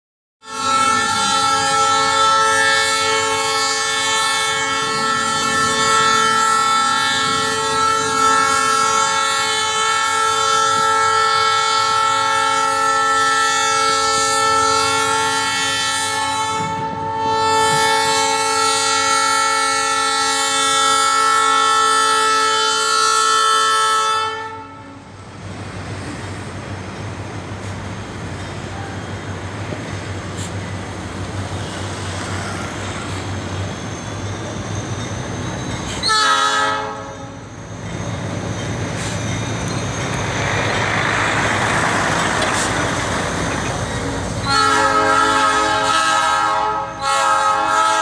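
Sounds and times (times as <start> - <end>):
locomotive air horn chord: 0.4 - 25.1, 35.9 - 37.5, 44.4 - 48.0.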